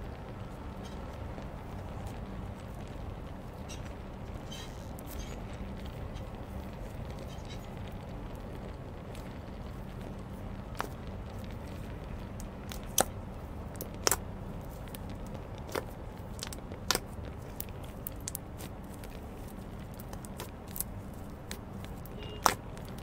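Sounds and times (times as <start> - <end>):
steady low hum: 0.0 - 23.0
slime popping and clicking: 12.6 - 19.2, 22.4 - 23.0.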